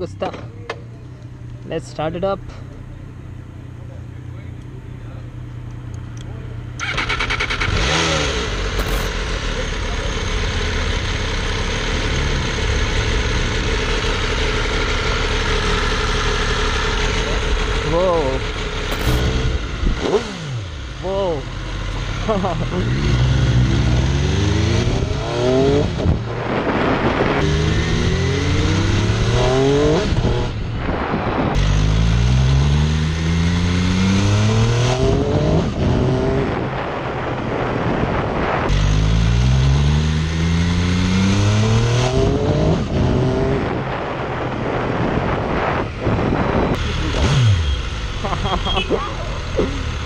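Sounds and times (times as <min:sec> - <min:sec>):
motorcycle engine accelerating: 0:00.0 - 0:50.0.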